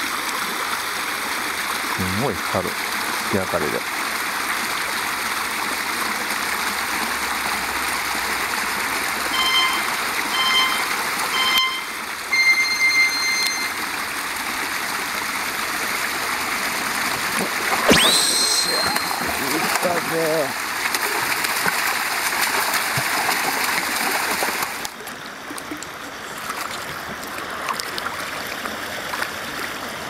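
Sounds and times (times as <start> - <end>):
water rushing in a stream: 0.0 - 30.0
long electronic beep: 9.4 - 13.8, 17.9 - 19.4
short electronic beeps: 9.4 - 13.8, 17.9 - 19.5.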